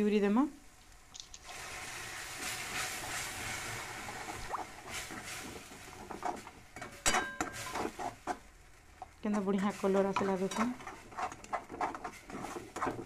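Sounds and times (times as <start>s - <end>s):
puree sizzling in hot pan: 0.0s - 13.0s
spatula scraping and tapping pan: 4.9s - 13.0s.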